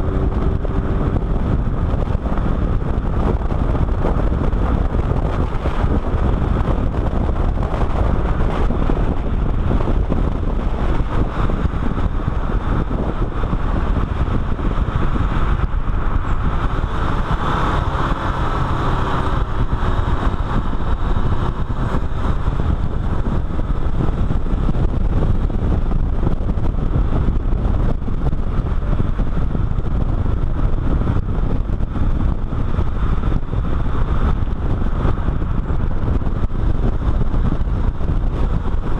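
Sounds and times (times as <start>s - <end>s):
road and tyre roar: 0.0s - 38.9s
wind rushing over microphone: 0.0s - 38.9s.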